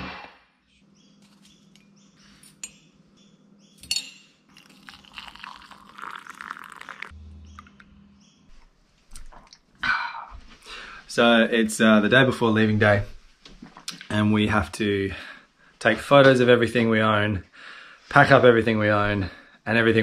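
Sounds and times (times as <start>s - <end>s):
milk pouring: 4.5s - 7.7s
hot water pouring into mugs: 4.6s - 7.2s.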